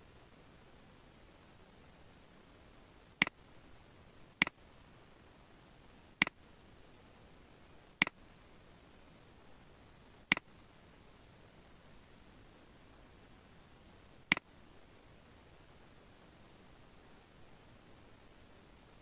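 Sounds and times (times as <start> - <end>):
faint steady hiss: 0.0 - 19.0.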